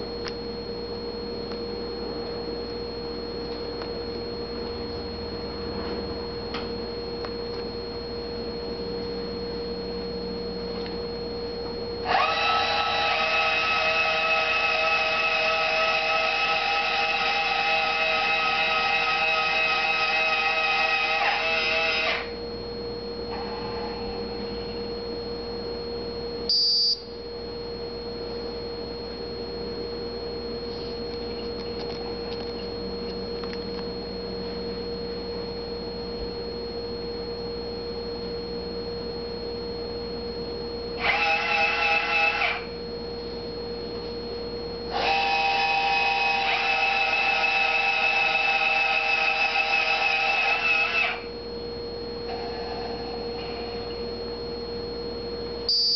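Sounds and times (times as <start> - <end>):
steady hum: 0.0 - 55.9
drive motors whining: 11.7 - 22.5, 41.0 - 42.8, 44.8 - 54.6.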